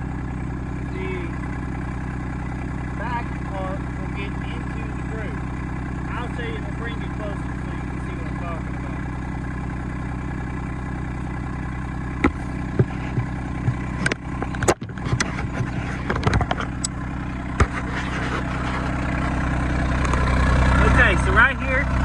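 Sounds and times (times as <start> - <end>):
tractor diesel engine idling: 0.0 - 22.0
sharp knocks and clicks: 12.2 - 17.9.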